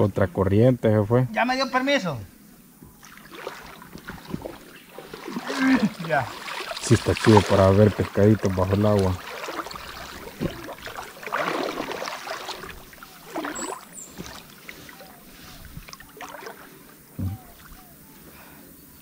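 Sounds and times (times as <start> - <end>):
river water sloshing and splashing: 3.0 - 17.9.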